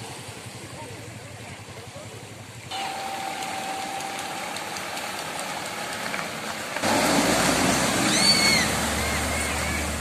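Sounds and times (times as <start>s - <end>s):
rushing floodwater: 0.0s - 10.0s
truck engine idling: 0.0s - 10.0s
thin steady whine: 2.7s - 5.8s.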